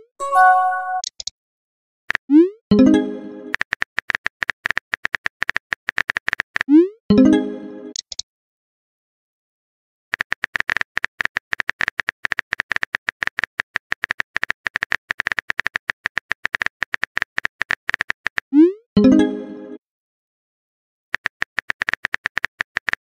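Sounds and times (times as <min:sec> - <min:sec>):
phone keyboard clicks: 0:10.1 - 0:18.4, 0:21.2 - 0:23.0.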